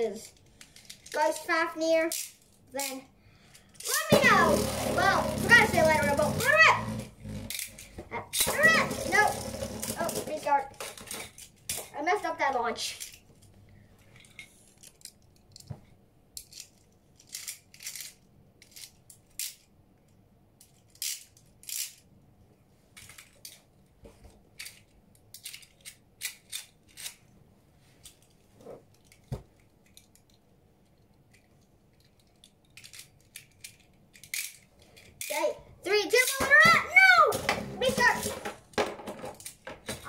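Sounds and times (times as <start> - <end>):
plastic and metal toy parts clicking: 0.2 - 1.5, 2.1 - 4.2, 7.4 - 12.0, 12.9 - 13.2, 14.2 - 15.7, 16.4 - 19.7, 20.6 - 22.1, 23.0 - 23.6, 24.6 - 27.2, 28.0 - 35.5, 36.1 - 36.7, 39.2 - 40.0.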